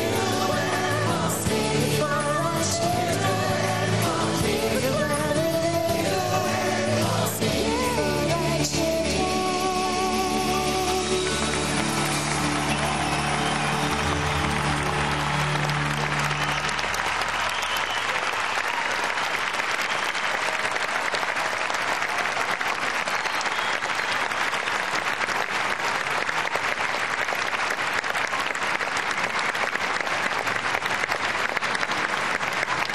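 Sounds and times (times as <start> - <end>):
crowd applauding: 0.0 - 5.1, 9.5 - 32.9.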